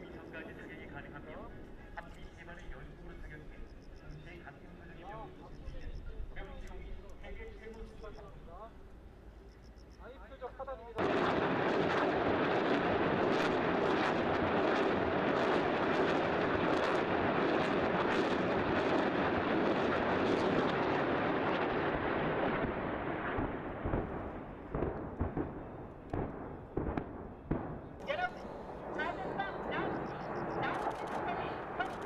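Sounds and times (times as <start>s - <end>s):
artillery shell explosions: 11.0s - 32.0s.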